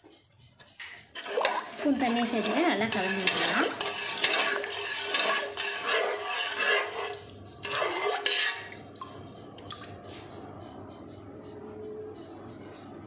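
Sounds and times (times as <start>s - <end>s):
ladle clinking against pot: 0.8s - 9.1s
liquid swishing and sloshing: 1.1s - 10.0s.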